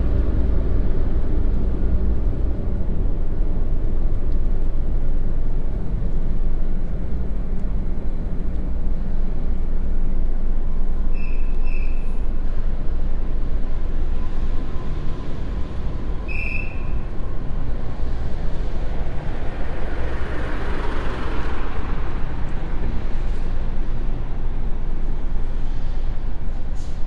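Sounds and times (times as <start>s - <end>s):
wind and road noise rumble: 0.0s - 27.0s
brief high squeak: 11.1s - 12.2s, 16.3s - 17.0s.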